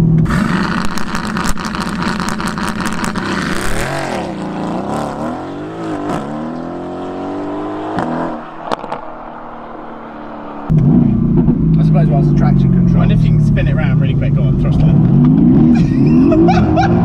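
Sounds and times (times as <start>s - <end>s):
crackling exhaust burble: 0.0s - 4.7s
car engine accelerating: 0.0s - 17.0s.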